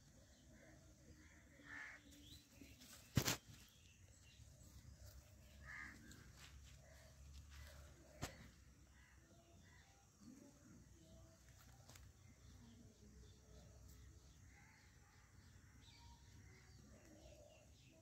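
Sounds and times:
bird calling: 5.0s - 9.9s.

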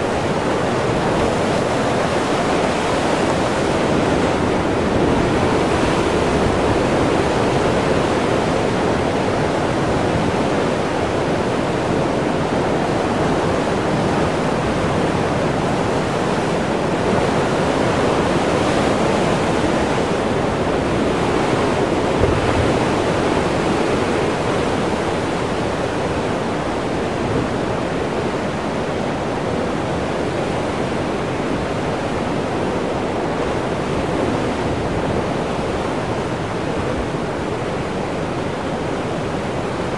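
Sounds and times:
ocean surf breaking on rocks: 0.0s - 39.9s.

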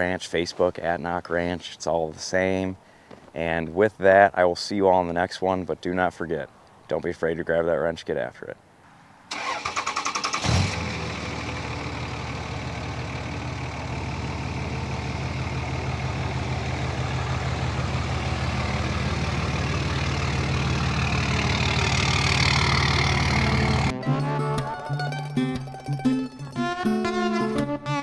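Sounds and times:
diesel truck engine running: 9.4s - 24.0s
guitar music: 11.5s - 28.0s.

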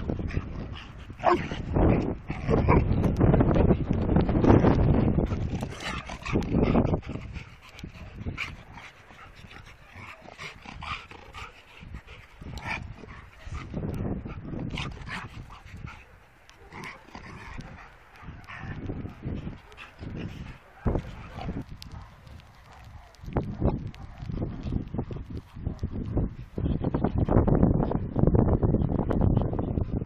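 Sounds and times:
dogs yipping and barking: 0.4s - 2.9s, 5.3s - 24.7s.

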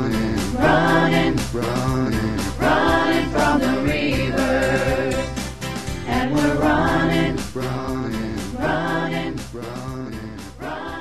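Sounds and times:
group of voices singing: 0.0s - 5.4s, 6.0s - 11.0s
steady drum beats: 0.0s - 11.0s.

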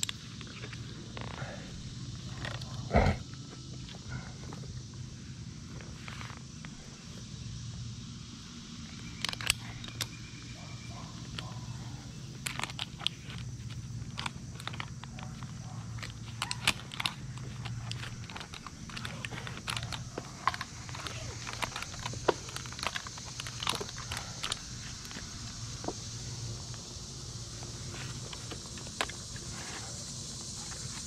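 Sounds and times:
climbing hardware clinking: 12.4s - 26.0s.

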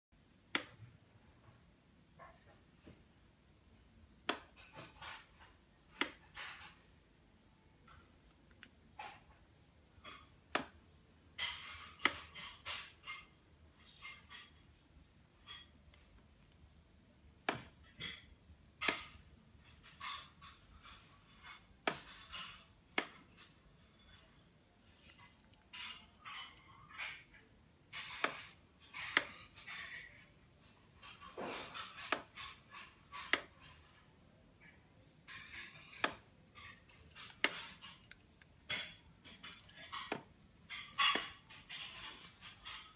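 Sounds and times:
sharp clicks and knocks: 0.4s - 1.6s, 17.4s - 42.9s.

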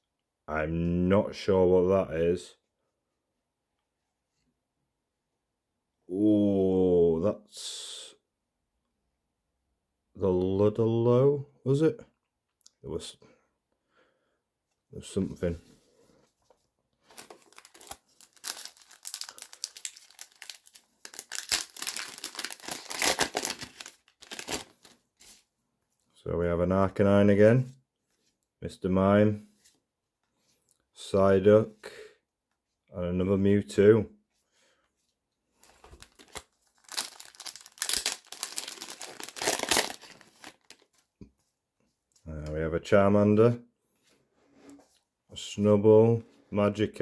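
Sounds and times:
foil pack crinkling and tearing: 17.1s - 25.0s, 35.6s - 40.9s.

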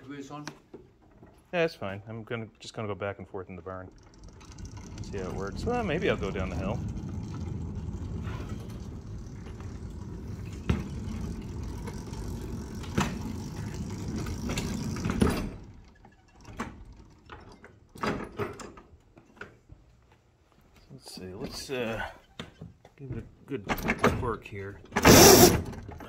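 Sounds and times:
electric motor and chain hum: 3.6s - 18.8s, 24.9s - 26.0s
wheels rumbling on rail: 3.9s - 15.9s.

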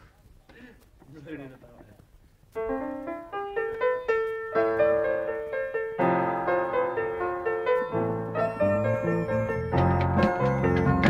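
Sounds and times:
keyboard music: 2.6s - 11.0s.

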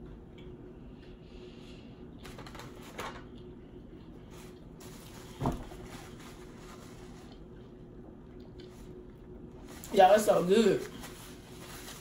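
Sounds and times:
handling food and napkin: 4.2s - 7.6s
faint chewing: 7.0s - 9.3s.

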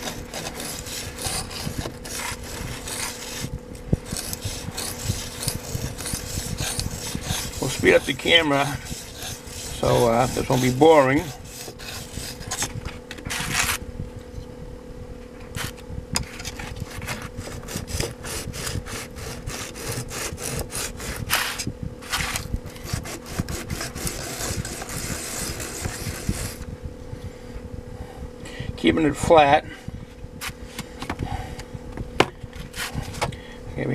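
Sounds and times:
small fan humming: 0.0s - 33.9s
blade scraping on sharpening stone: 4.1s - 12.6s.

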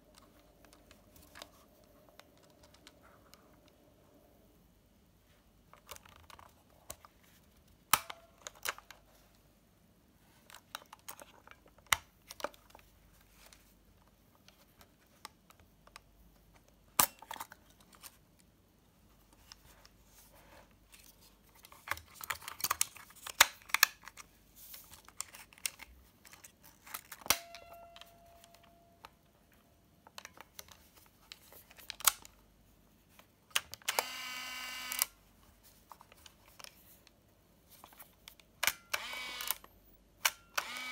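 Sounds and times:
camera motor whir: 33.9s - 35.1s, 38.9s - 39.6s, 40.6s - 40.9s.

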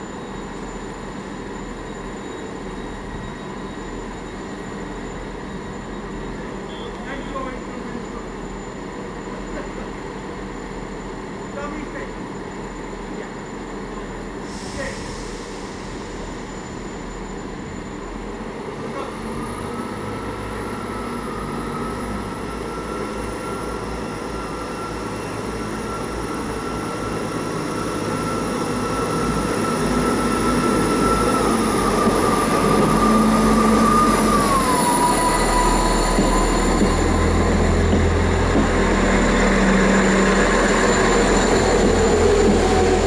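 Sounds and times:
diesel train engines running: 0.0s - 43.0s
high whine sliding down in pitch: 14.6s - 43.0s.

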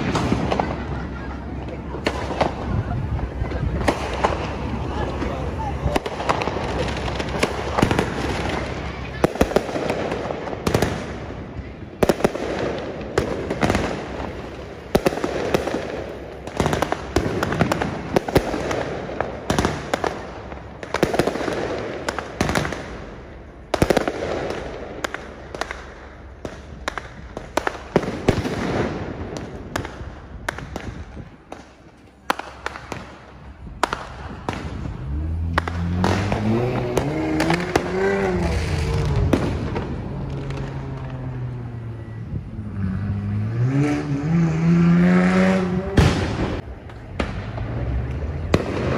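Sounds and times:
fireworks bangs and crackling: 0.0s - 48.9s
vehicle engine revving: 34.0s - 46.6s.

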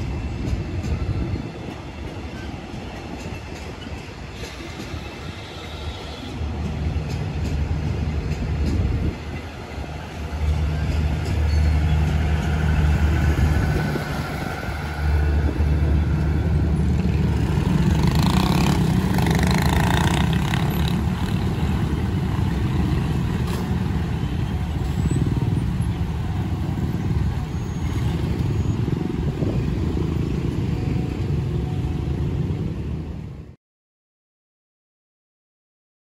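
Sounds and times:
passenger train rumbling past: 0.0s - 33.6s
motorcycles and cars driving: 10.0s - 33.5s.

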